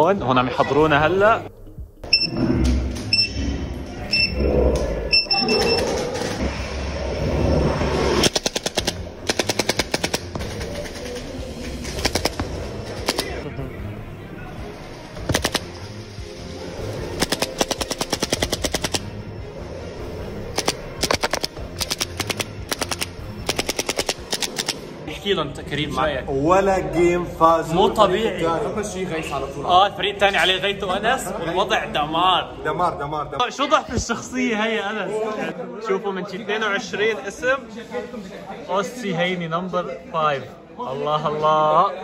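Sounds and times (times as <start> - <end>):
short high beeps: 4.1 - 4.4, 5.1 - 5.8.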